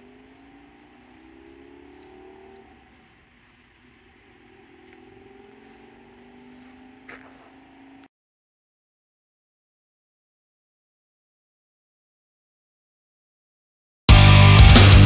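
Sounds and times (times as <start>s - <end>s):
insect chirping: 0.0s - 8.1s.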